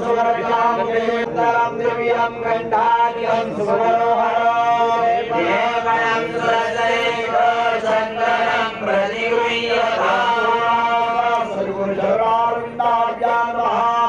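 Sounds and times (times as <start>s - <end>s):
man chanting mantras: 0.0s - 14.0s.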